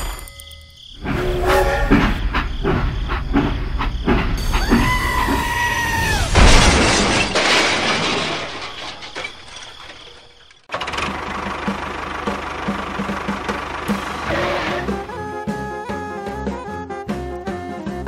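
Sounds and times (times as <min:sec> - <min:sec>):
train wheels clattering over rail joints: 0:01.0 - 0:05.8
train horn blast: 0:01.2 - 0:02.2, 0:14.2 - 0:15.3
loud crash with rattle: 0:06.0 - 0:11.4.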